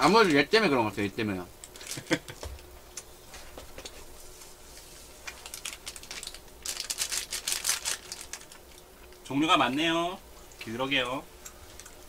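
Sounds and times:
eating clicks and crackles: 5.2 - 9.3, 10.4 - 12.0.

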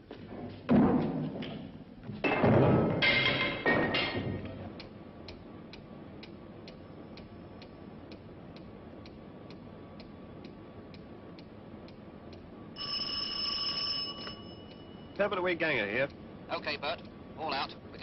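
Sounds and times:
telephone bell ringing: 12.8 - 15.1
wall clock ticking: 14.6 - 17.2.

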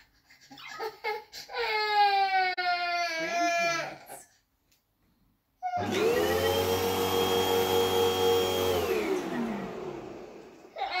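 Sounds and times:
vacuum cleaner motor whining: 5.6 - 11.0.

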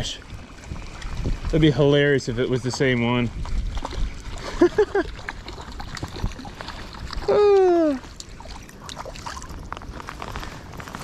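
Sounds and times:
fish splashing at water surface: 3.4 - 10.0
person exclaiming: 7.2 - 8.0.

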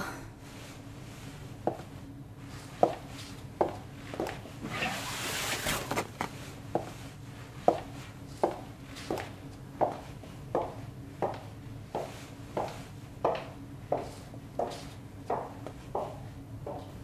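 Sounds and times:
low steady hum: 0.0 - 17.0
rustling scrape: 4.6 - 6.5.

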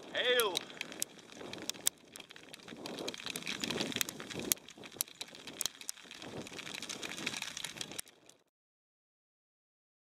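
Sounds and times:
soft low rustle: 0.0 - 8.4
hail pellets ticking: 0.0 - 8.5.

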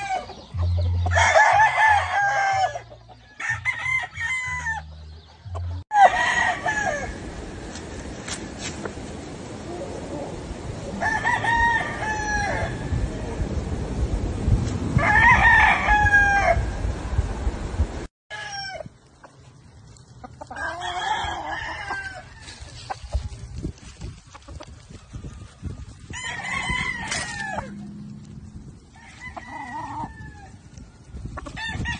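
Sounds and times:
roosters crowing: 0.0 - 7.6, 9.6 - 13.4, 14.9 - 16.8, 18.3 - 19.0, 20.4 - 23.5, 25.0 - 31.9.

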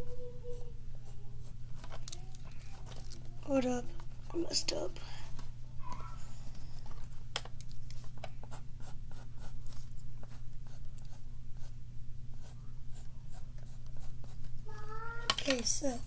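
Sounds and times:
steady low hum: 0.0 - 16.0
drawing tool scratching on paper: 8.4 - 14.5.

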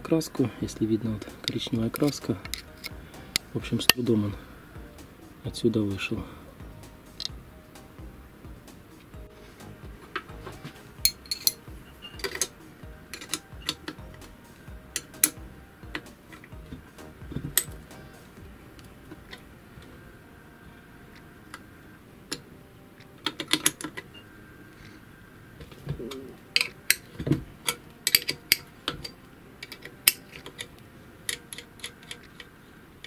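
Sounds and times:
metal clicks of hex key and screws: 27.6 - 30.7.

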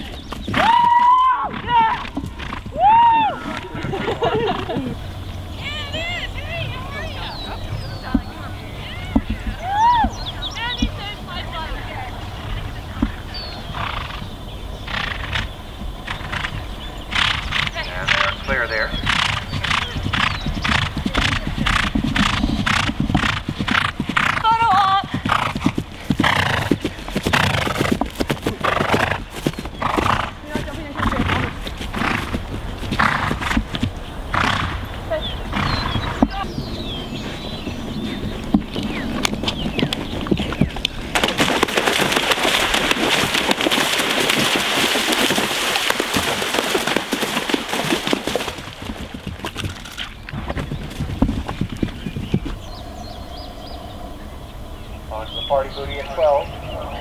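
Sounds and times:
horse hoofbeats on turf: 5.6 - 14.2, 16.1 - 52.8
horse breathing: 12.1 - 41.1
horse splashing through water: 39.5 - 52.4.

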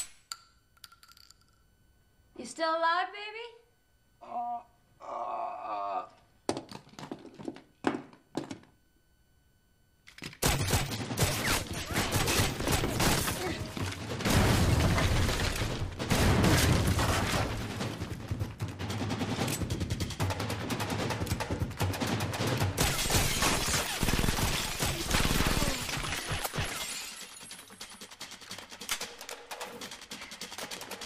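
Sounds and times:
gunshots rapid fire: 10.4 - 31.0.

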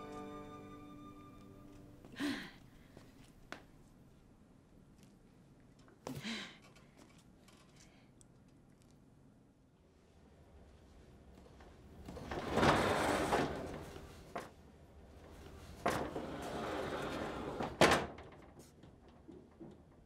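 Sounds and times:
sliding glass door rolling: 11.7 - 14.5, 15.1 - 18.5.

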